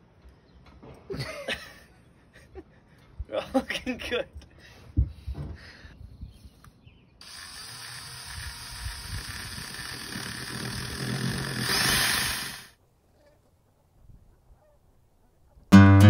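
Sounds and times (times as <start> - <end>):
cordless drill running: 7.2 - 12.8.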